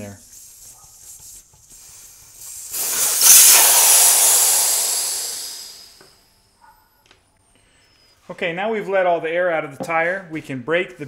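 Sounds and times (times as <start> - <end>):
air hissing out of tire valve: 0.0 - 6.3.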